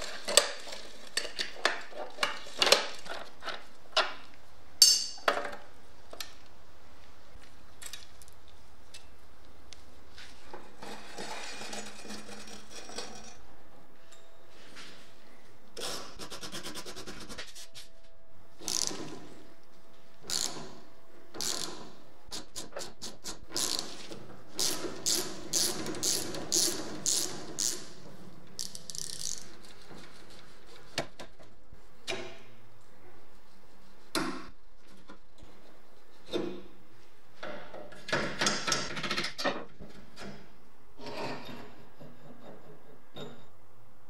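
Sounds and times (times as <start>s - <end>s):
ratchet wrench clicking: 28.6s - 29.4s
rattle of loose bearing balls: 28.6s - 29.8s.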